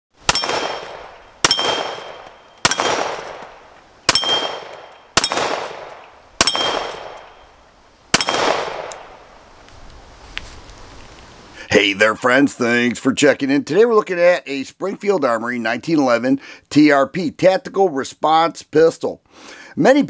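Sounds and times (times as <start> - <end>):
pistol shots: 0.2 - 7.5, 8.1 - 9.2
steel target ringing: 0.3 - 7.6, 8.2 - 8.8.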